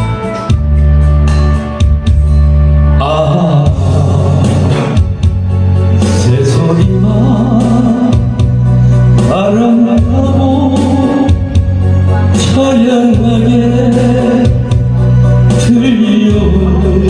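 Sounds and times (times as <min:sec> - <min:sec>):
karaoke backing track with drums: 0:00.0 - 0:17.0
man singing into a microphone: 0:02.9 - 0:05.2, 0:05.8 - 0:17.0.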